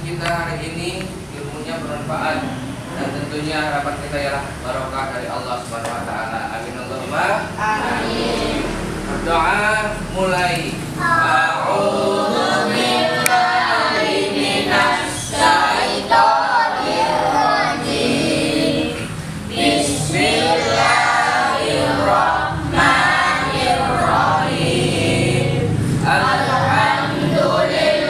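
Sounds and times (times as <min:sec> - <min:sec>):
children chanting a prayer: 0:07.0 - 0:28.0.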